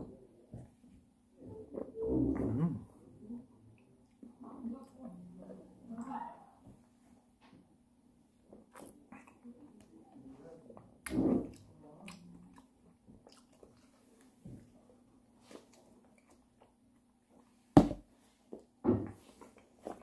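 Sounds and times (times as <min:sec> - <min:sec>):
person chewing fruit: 0:08.5 - 0:09.9, 0:10.8 - 0:14.8, 0:15.4 - 0:17.7.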